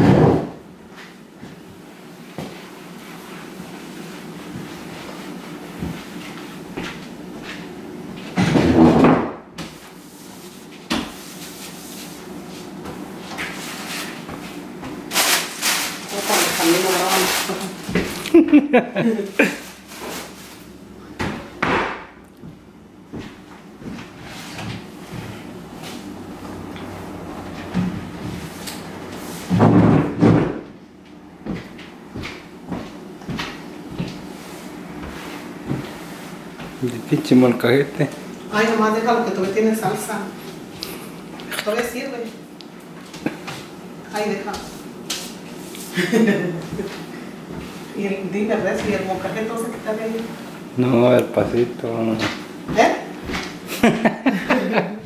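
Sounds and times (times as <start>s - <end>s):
wooden chairs knocking: 8.4s - 9.5s, 29.5s - 30.7s
plastic bag rustling: 15.1s - 18.3s, 19.1s - 20.8s.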